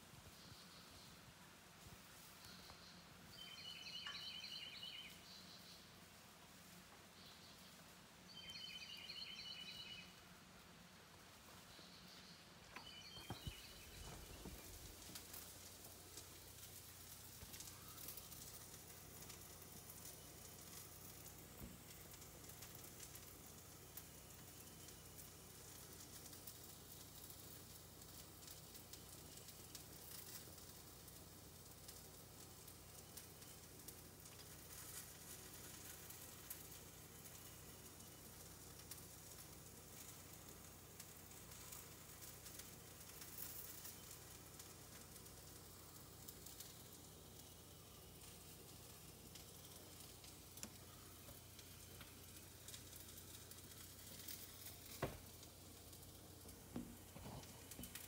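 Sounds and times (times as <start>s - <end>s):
faint steady hiss: 0.0s - 58.0s
light crackling: 0.0s - 58.0s.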